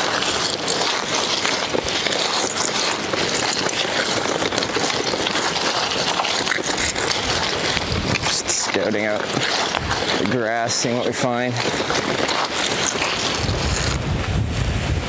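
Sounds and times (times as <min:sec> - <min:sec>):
stones crunching under tyres and shoes: 0:00.0 - 0:14.3.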